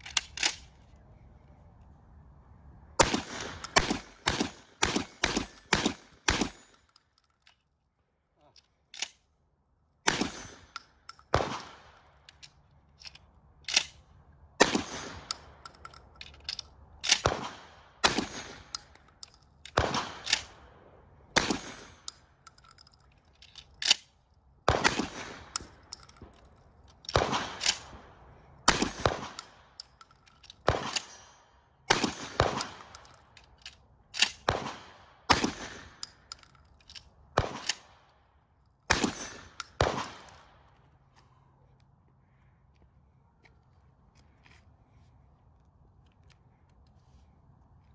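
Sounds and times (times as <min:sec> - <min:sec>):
shotgun shots echoing: 0:03.0 - 0:06.7, 0:10.0 - 0:12.0, 0:14.6 - 0:15.3, 0:17.2 - 0:18.7, 0:19.8 - 0:20.6, 0:21.3 - 0:22.0, 0:24.7 - 0:25.7, 0:27.1 - 0:28.1, 0:28.7 - 0:29.6, 0:30.6 - 0:33.0, 0:34.3 - 0:36.0, 0:37.4 - 0:38.0, 0:38.9 - 0:40.5
metallic clicks and clacks: 0:15.0 - 0:17.3, 0:21.6 - 0:24.2, 0:25.4 - 0:28.0, 0:35.8 - 0:37.9.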